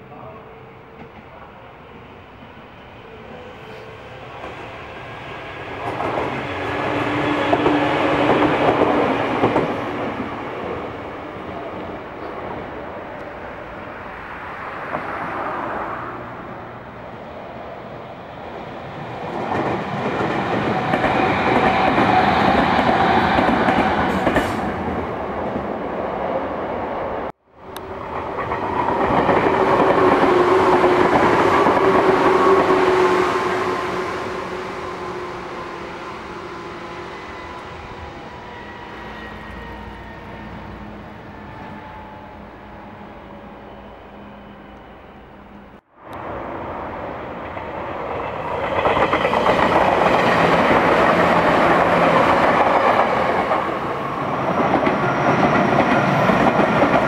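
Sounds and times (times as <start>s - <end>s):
train wheels clattering on rails: 47.5s - 57.0s.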